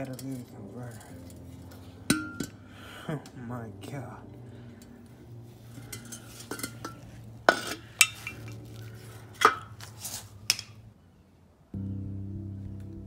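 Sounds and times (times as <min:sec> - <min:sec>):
metal parts clanking: 0:00.0 - 0:02.6, 0:05.7 - 0:08.7
steady low hum: 0:00.0 - 0:11.0, 0:11.7 - 0:13.0.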